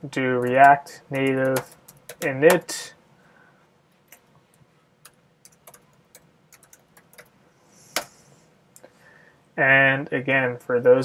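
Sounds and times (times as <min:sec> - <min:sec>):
keyboard typing clicks: 0:00.4 - 0:02.7, 0:05.0 - 0:07.3.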